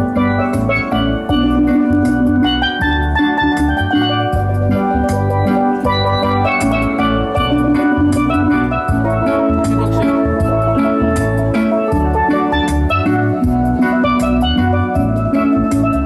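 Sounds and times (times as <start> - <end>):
bass line: 0.0 - 16.0
drums keeping beat: 0.0 - 16.0
steel pans playing melody: 0.0 - 16.0.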